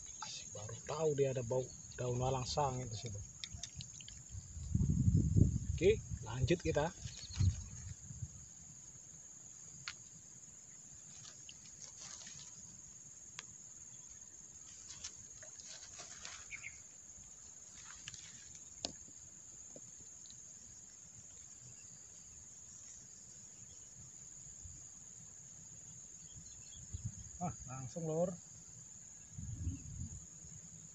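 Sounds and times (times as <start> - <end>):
faint clicks and rustles: 11.0 - 13.5, 14.6 - 20.4.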